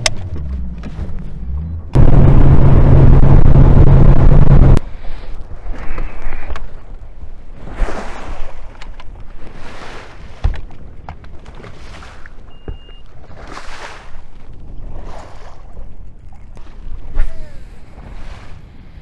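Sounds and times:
wind: 0.0 - 19.0
water slapping against boat hull: 7.8 - 17.2
short high beep: 12.5 - 13.0.

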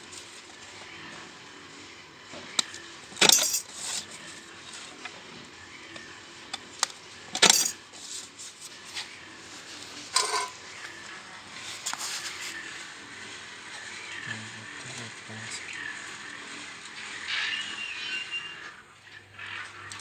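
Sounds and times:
metal shear cutting sheet metal: 2.6 - 4.0, 7.3 - 7.8, 10.1 - 10.6.

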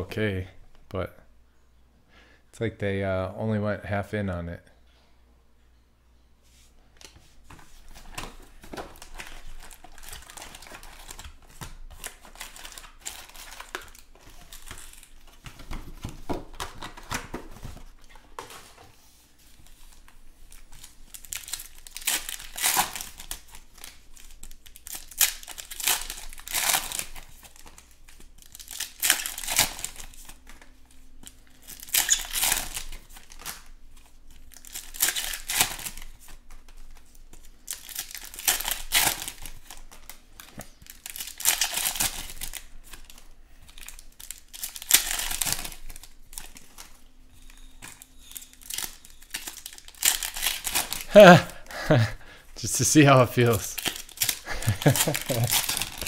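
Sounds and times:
wrappers torn and crinkled: 8.3 - 15.4, 19.9 - 52.1, 52.7 - 56.0
cards being handled: 52.7 - 56.0.

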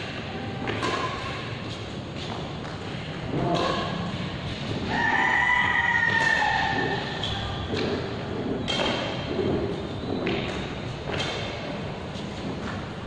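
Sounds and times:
racket striking shuttlecock: 0.0 - 2.8, 6.1 - 9.3.

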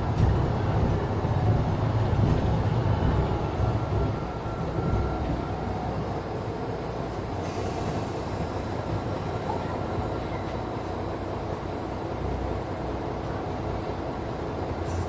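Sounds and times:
bus engine and road rumble: 0.0 - 15.0.

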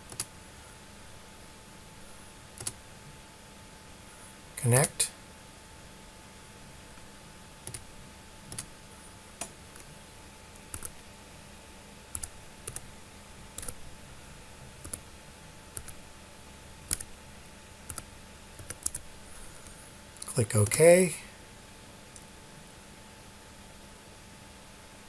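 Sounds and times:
keyboard keys clicking: 0.0 - 0.3, 2.6 - 2.8, 7.6 - 7.8, 10.7 - 11.0, 12.1 - 12.8, 13.6 - 13.8, 15.8 - 16.0, 16.9 - 17.1, 17.9 - 19.0.

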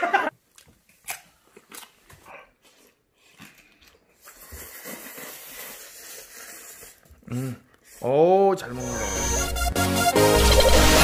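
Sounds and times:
hissing slurp of noodles: 4.2 - 8.0.

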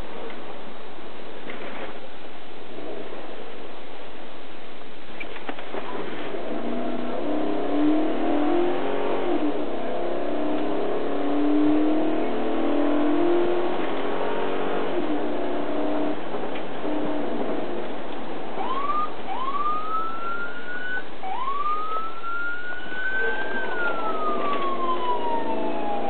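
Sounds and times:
road noise: 0.0 - 26.0
car engine revving: 5.8 - 18.6, 23.0 - 26.0.

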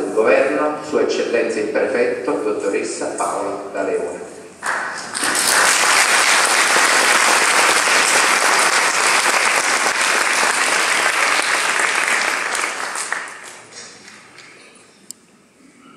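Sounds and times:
congregation clapping: 4.6 - 14.8.

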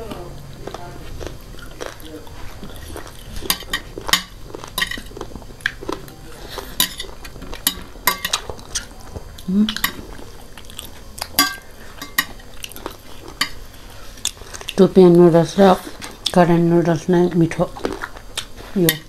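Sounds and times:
slurping and chewing: 0.0 - 16.6, 17.3 - 19.0
forks clinking on ceramic plates: 3.4 - 5.1, 6.8 - 8.9, 11.3 - 12.8
person humming: 9.4 - 9.8.

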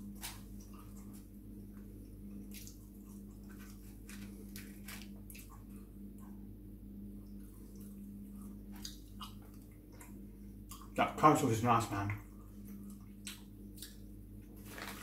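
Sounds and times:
low electrical hum: 0.0 - 15.0
chips crackling on paper: 3.5 - 5.2, 14.6 - 15.0.

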